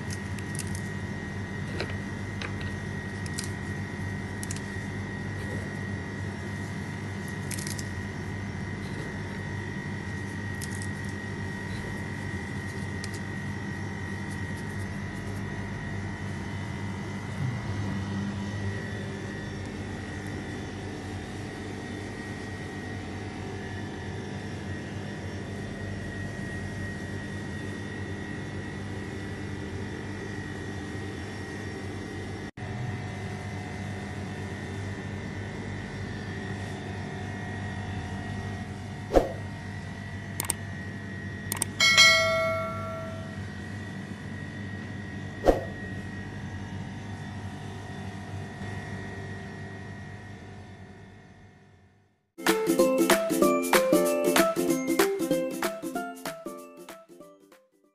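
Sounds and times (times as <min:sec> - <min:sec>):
mechanical hum: 0:00.0 - 0:53.6
ringing clink of struck object: 0:41.8 - 0:43.4.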